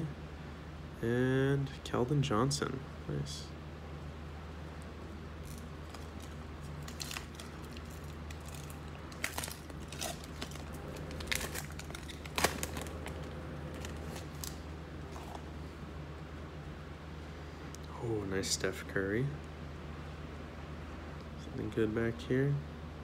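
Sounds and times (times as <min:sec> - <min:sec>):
steady low hum: 0:00.0 - 0:23.0
trading cards rustling: 0:05.4 - 0:15.6.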